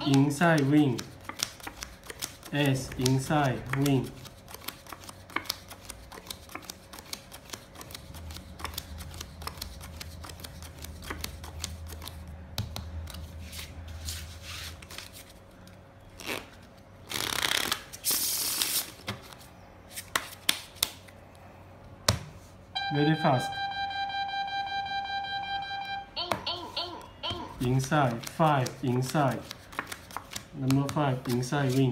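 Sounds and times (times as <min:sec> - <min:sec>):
deck of cards being shuffled: 0:00.0 - 0:12.2, 0:16.2 - 0:21.0, 0:27.5 - 0:31.9
playing cards snapping and sliding: 0:00.1 - 0:12.2, 0:20.0 - 0:21.2, 0:27.7 - 0:31.9.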